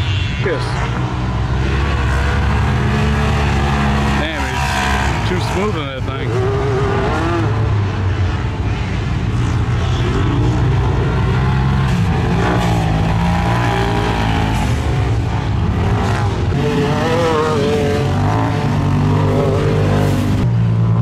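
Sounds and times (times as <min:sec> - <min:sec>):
engines revving: 0:00.0 - 0:21.0.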